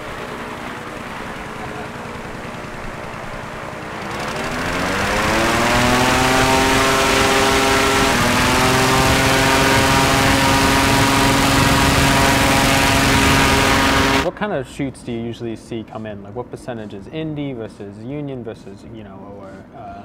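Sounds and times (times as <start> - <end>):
propeller wind machine spooling up: 0.0 - 14.3.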